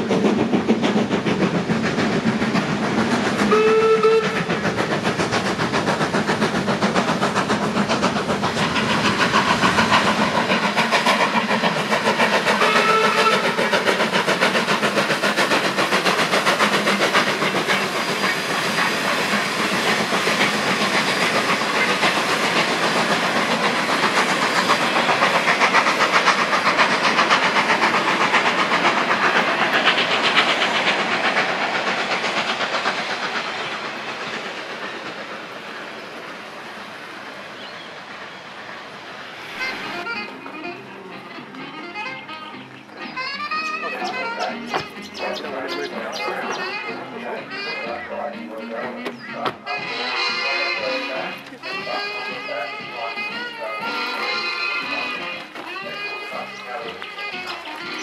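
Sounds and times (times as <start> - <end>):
steam train exhaust beats: 0.0 - 58.0
train clatter on rails: 0.0 - 58.0
steam whistle toots: 3.4 - 4.5, 12.4 - 13.8, 47.9 - 58.0.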